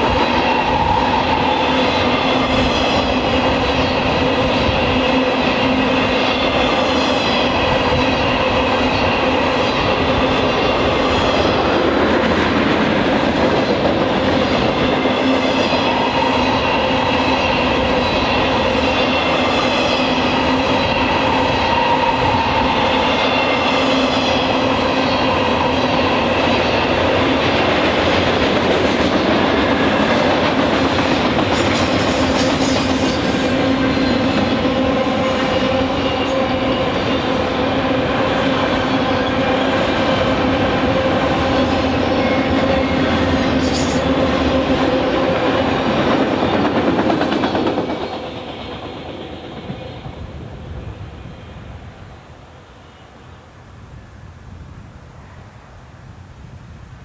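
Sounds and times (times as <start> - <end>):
steel wheels rolling on rails: 23.5 - 49.9.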